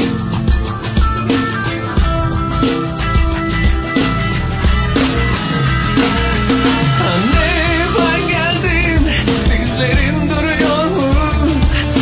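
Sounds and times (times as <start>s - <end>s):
rock drums and guitar: 0.0s - 12.0s
cymbals: 1.0s - 10.0s.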